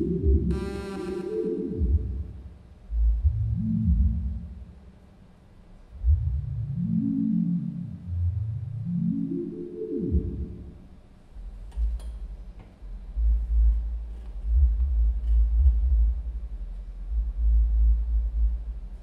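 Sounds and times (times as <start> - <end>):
deep wavering low rumble: 1.8 - 4.8, 5.9 - 9.2, 11.4 - 19.0.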